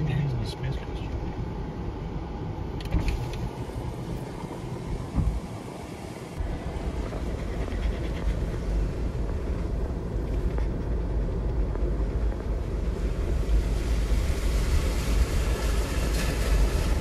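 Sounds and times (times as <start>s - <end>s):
car engine low rumble: 0.0s - 17.0s
water washing: 12.8s - 17.0s.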